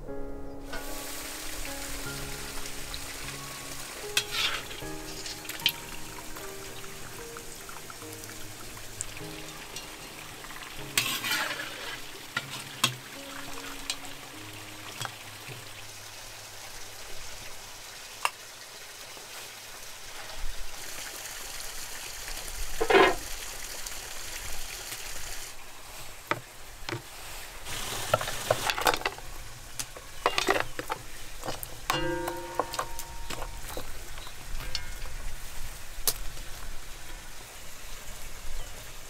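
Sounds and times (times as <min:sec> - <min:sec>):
food sizzling in a hot pan: 0:00.7 - 0:17.5
utensil scraping against pan: 0:04.2 - 0:05.4, 0:11.0 - 0:12.7, 0:22.8 - 0:23.2.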